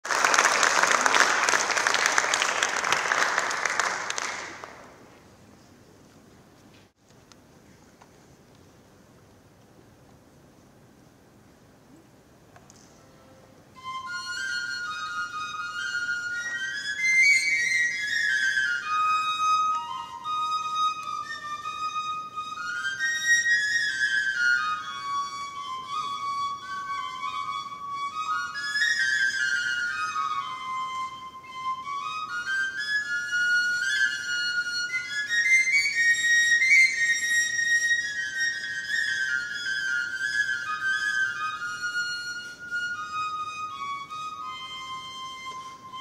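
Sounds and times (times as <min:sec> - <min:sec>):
audience applauding: 0:00.0 - 0:05.0
low room noise: 0:00.0 - 0:46.0
whistle-like wind instrument melody: 0:13.0 - 0:46.0.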